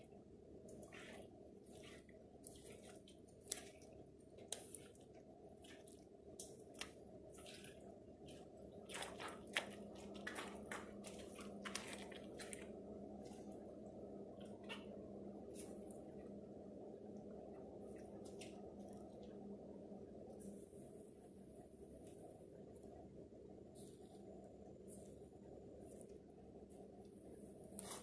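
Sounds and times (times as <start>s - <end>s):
boots squelching mashed fruit: 1.0s - 12.8s
snacks crackling underfoot: 1.8s - 12.8s.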